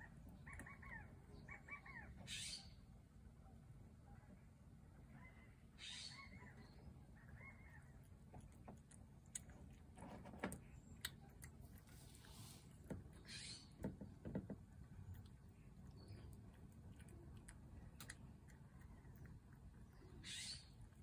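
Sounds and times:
cat eating from a dish: 0:07.9 - 0:21.0
distant bird calling: 0:13.1 - 0:14.1, 0:20.0 - 0:20.9.

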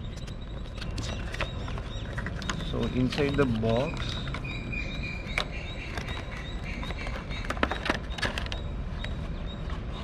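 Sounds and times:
packaging rustling and clicking: 0:00.2 - 0:04.5, 0:05.3 - 0:08.6.

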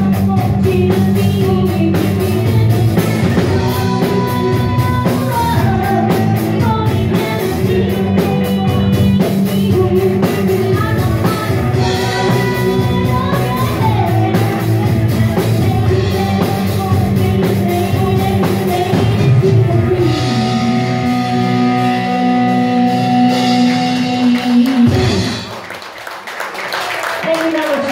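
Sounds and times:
woman singing into a microphone: 0:00.0 - 0:22.1
electric guitars: 0:00.0 - 0:25.7
drum kit: 0:00.0 - 0:25.9.

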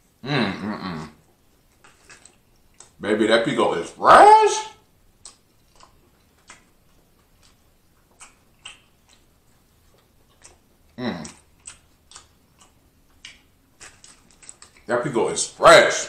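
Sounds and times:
close chewing with wet mouth clicks: 0:01.2 - 0:03.0, 0:05.0 - 0:14.9.

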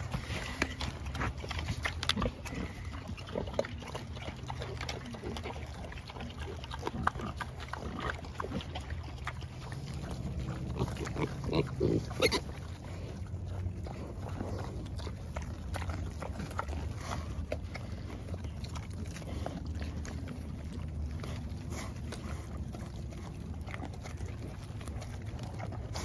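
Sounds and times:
pigs chewing and crunching: 0:00.0 - 0:26.0.

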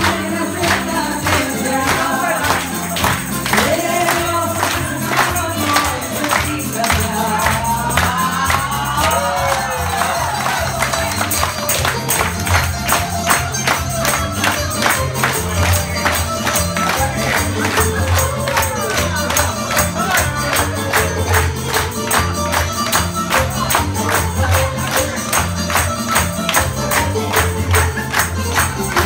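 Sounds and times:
woman singing into a microphone: 0:00.0 - 0:10.1
people clapping along: 0:00.0 - 0:29.0
upbeat bouzouki music: 0:00.0 - 0:29.0.

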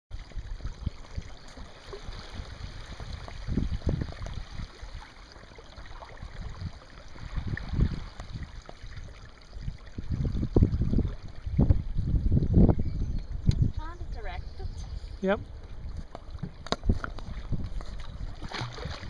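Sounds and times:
water lapping against canoe: 0:00.2 - 0:12.6, 0:13.3 - 0:19.0
wind rumbling on microphone: 0:00.2 - 0:19.0.

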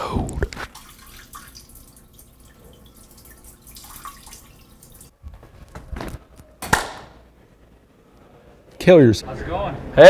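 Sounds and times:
tap water running and dripping: 0:00.3 - 0:05.1.

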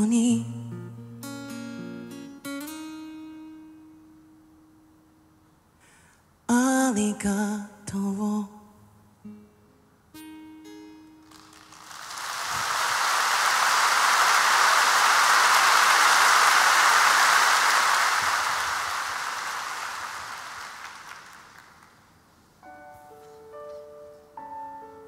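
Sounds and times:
audience applauding: 0:11.3 - 0:22.2.

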